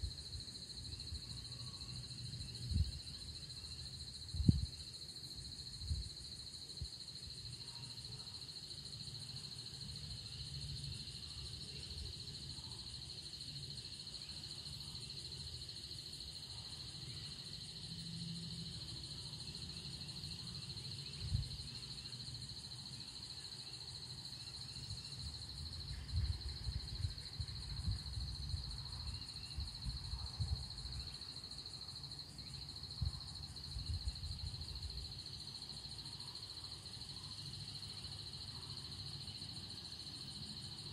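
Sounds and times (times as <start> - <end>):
wind buffeting microphone: 4.2 - 4.8, 25.8 - 31.1.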